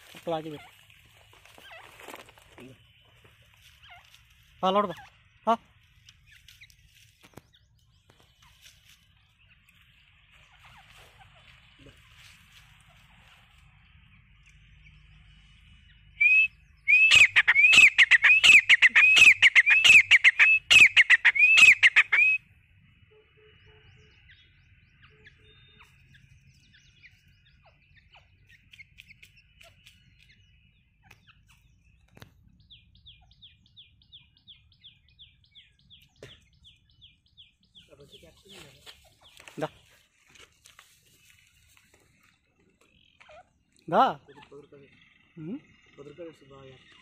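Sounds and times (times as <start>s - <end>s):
francolin calling shrill notes: 16.2s - 22.4s.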